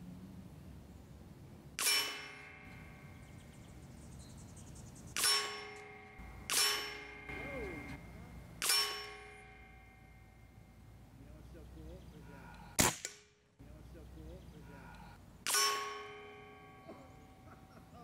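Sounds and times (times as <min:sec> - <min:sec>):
air rifle shots: 0:01.8 - 0:02.9, 0:05.2 - 0:08.0, 0:08.6 - 0:09.5, 0:12.8 - 0:13.4, 0:15.4 - 0:16.3
metallic ring: 0:01.8 - 0:03.7, 0:05.2 - 0:11.1, 0:15.4 - 0:18.0.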